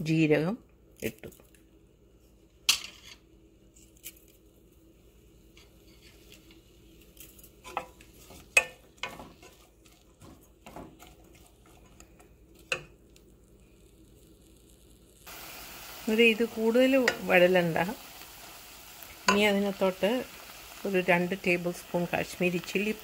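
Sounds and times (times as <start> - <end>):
spatula stirring food in a pan: 5.1 - 23.0.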